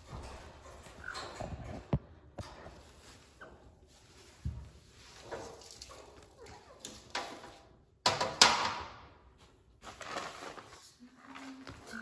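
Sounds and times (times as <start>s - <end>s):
scraping and rustling: 0.0s - 7.7s.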